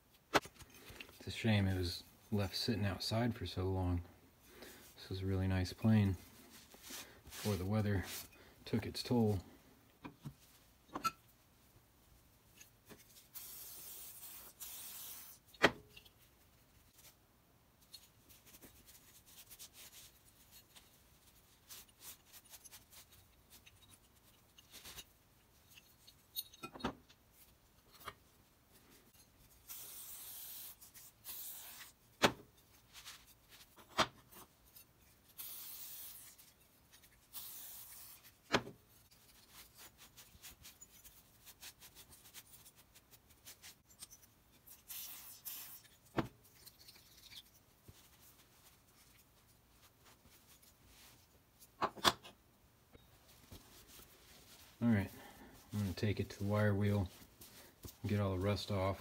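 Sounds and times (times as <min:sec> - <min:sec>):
cloth rag rubbing metal: 0:06.2 - 0:08.3.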